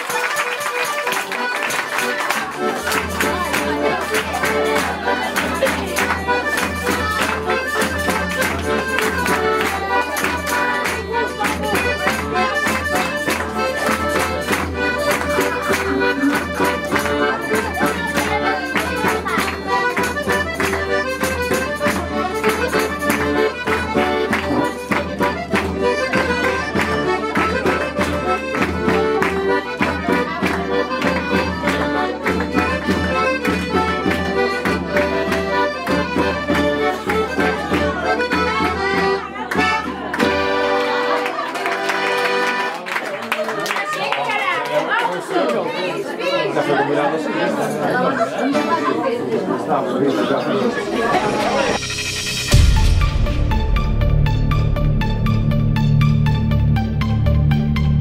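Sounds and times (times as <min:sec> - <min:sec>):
strummed guitars: 0:00.0 - 0:42.6
accordion: 0:00.0 - 0:43.9, 0:44.6 - 0:58.0
crowd clapping along: 0:00.0 - 0:46.4, 0:50.3 - 0:57.1.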